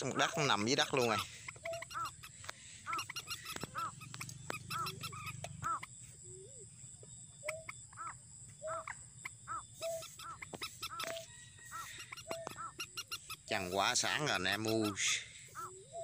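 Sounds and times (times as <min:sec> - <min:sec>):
waterhen calling harsh notes: 0:00.0 - 0:05.9, 0:07.5 - 0:15.8.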